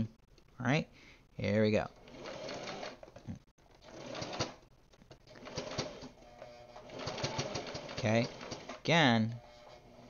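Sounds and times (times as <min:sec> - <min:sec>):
sewing machine stitching: 0:01.9 - 0:04.6, 0:05.3 - 0:06.2, 0:06.8 - 0:08.9.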